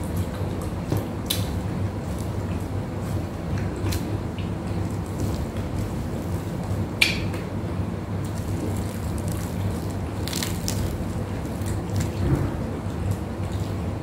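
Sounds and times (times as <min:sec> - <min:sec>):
steady low hum: 0:00.0 - 0:14.0
fried fish crust crackling: 0:08.2 - 0:12.3.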